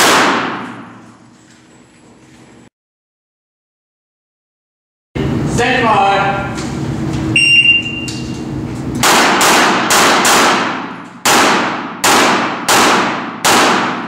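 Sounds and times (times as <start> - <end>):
pistol shots echoing: 0.0 - 0.9, 9.0 - 14.0
shot timer beep: 7.3 - 8.3.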